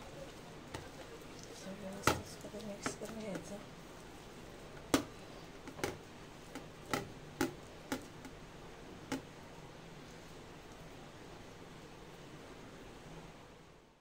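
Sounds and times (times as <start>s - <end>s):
hand mixing paste on steel plate: 0.6s - 4.1s, 4.7s - 8.4s
taps and clicks against metal: 5.7s - 8.4s.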